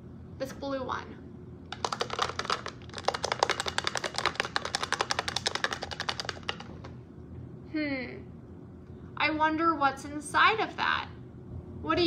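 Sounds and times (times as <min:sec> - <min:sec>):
plastic toy rattling in box: 0:01.7 - 0:07.0.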